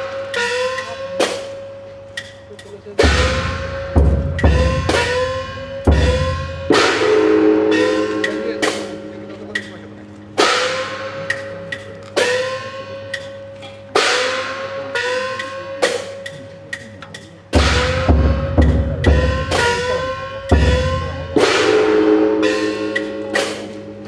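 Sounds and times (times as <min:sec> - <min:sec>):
metallic percussion strikes: 0:00.0 - 0:24.0
deep drum beat: 0:03.0 - 0:12.7, 0:15.3 - 0:24.0.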